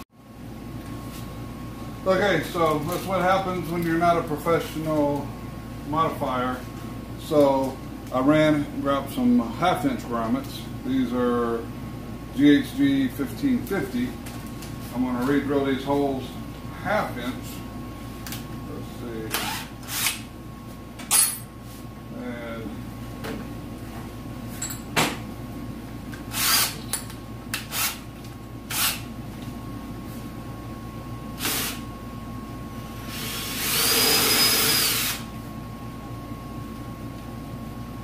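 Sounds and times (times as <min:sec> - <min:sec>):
drill motor whining: 0:26.3 - 0:26.8, 0:31.4 - 0:31.8, 0:33.0 - 0:35.3.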